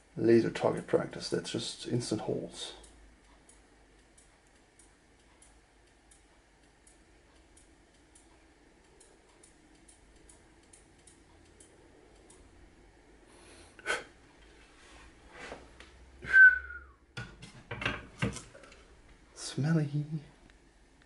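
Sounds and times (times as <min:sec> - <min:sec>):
laser ticking and crackling: 0:02.8 - 0:12.7.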